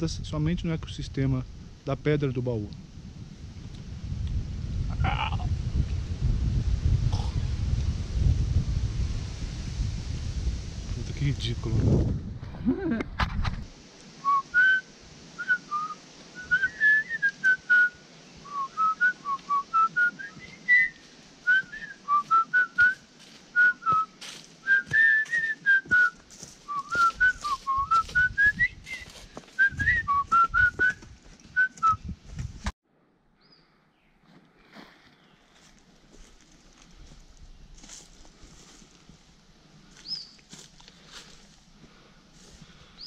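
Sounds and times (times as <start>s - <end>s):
person whistling a tune: 14.2s - 14.8s, 15.4s - 17.9s, 18.5s - 23.0s, 23.6s - 31.0s, 31.6s - 32.0s.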